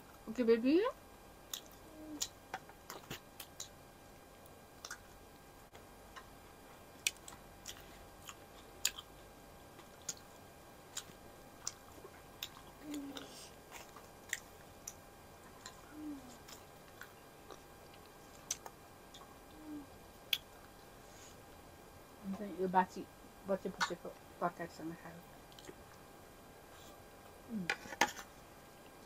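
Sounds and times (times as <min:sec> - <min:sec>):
low hums: 0:00.0 - 0:29.0
mouth clicks and smacks: 0:01.5 - 0:03.7, 0:04.8 - 0:05.1
people chewing flatbread: 0:01.5 - 0:03.7, 0:04.8 - 0:21.4, 0:25.5 - 0:29.0.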